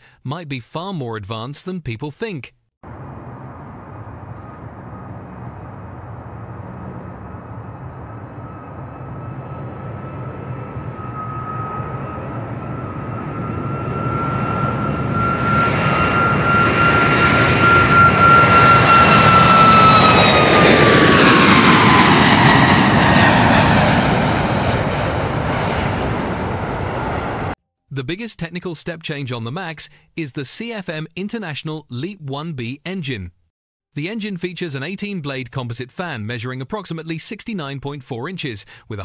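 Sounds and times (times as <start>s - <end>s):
jet engine rumble with fan whine: 2.9s - 27.6s.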